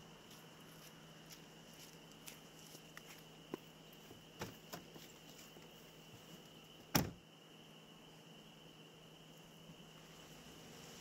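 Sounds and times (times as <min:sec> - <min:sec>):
car door clicks: 0:06.9 - 0:07.2
car door shutting thud: 0:06.9 - 0:07.2.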